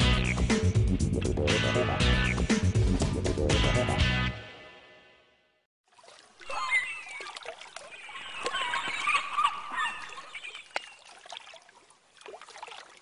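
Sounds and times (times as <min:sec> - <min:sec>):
water splashing and bubbling: 0:05.8 - 0:13.0.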